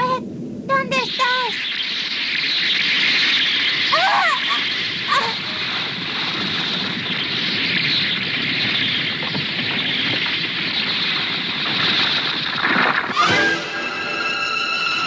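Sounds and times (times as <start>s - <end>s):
cartoon rumbling sound effect: 12.7s - 13.8s.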